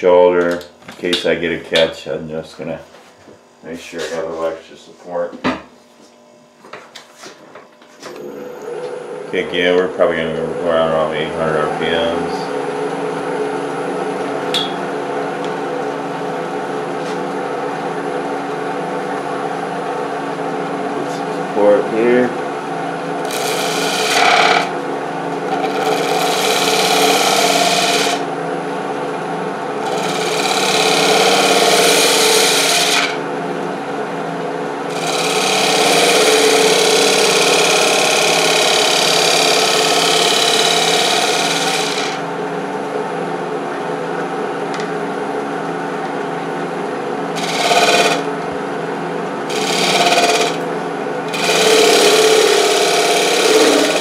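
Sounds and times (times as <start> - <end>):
wood lathe humming: 8.1 - 43.1, 46.8 - 54.0
turning tool scraping wood: 23.2 - 24.8, 25.4 - 28.3, 29.8 - 33.2, 34.9 - 42.2, 47.4 - 48.3, 49.5 - 50.6, 51.3 - 54.0.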